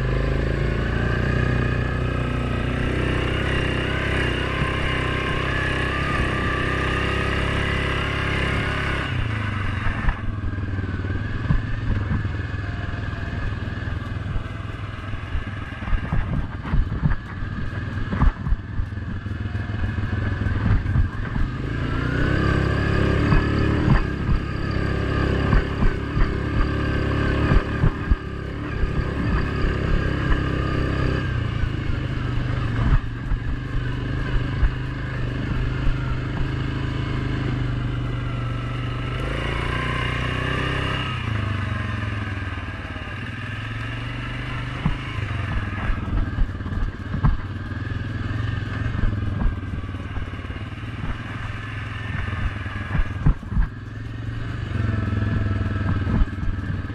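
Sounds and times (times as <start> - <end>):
atv engine running: 0.0 - 56.9
knocks and rattles over bumps: 11.3 - 12.5, 13.4 - 21.6, 44.7 - 54.2, 54.9 - 56.9.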